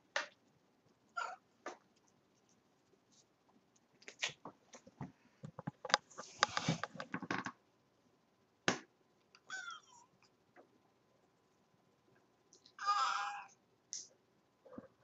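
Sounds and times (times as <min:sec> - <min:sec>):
cat meowing: 0:09.4 - 0:10.1, 0:12.8 - 0:13.6.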